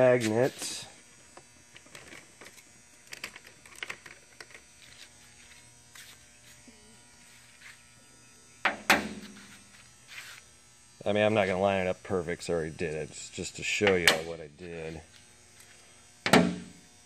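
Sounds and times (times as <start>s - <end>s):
handling rustles and ticks: 0.0s - 6.6s
electrical buzz and hum: 0.0s - 17.0s.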